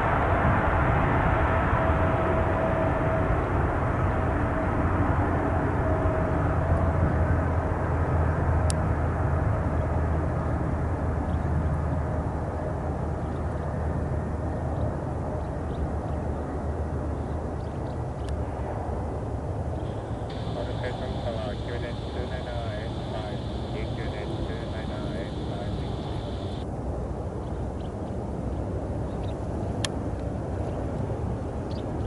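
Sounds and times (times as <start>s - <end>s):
jet engines at takeoff thrust: 0.0s - 26.7s
steady hum tone: 18.9s - 26.7s.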